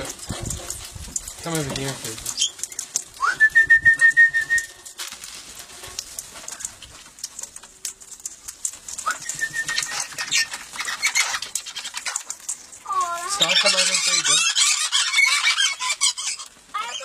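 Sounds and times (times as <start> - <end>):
parrots squawking and chattering: 0.0 - 3.2, 5.5 - 17.0
loud trilling whistles: 3.2 - 4.8, 9.0 - 10.1.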